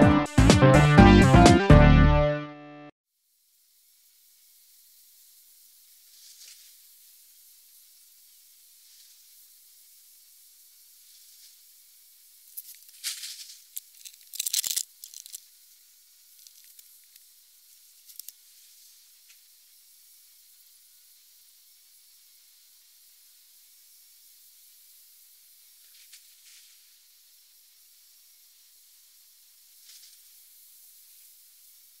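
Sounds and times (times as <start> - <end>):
faint outdoor hiss: 3.1 - 32.0
rough rustling and scraping: 12.5 - 15.5, 16.3 - 17.2
small clicks: 12.5 - 15.5, 16.3 - 17.3, 18.0 - 18.4.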